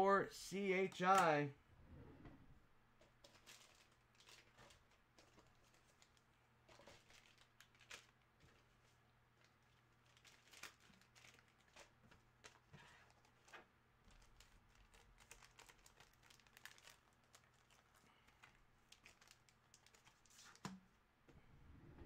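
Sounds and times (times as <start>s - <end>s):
faint steady hum: 0.0s - 22.0s
soft clicks and crinkles: 1.9s - 21.5s.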